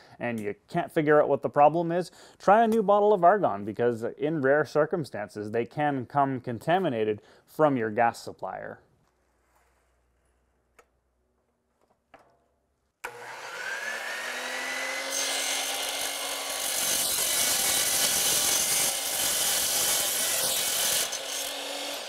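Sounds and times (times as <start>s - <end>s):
saw blade cutting metal: 13.0s - 22.0s
miter saw motor whine: 13.1s - 17.8s.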